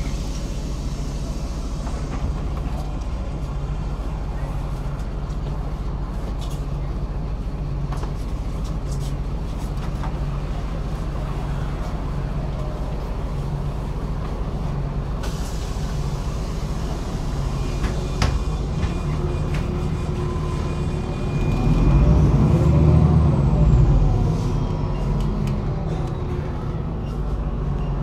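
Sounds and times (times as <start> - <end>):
bus diesel engine hum: 0.0 - 28.0
road noise: 0.0 - 28.0
hiss: 15.2 - 18.0.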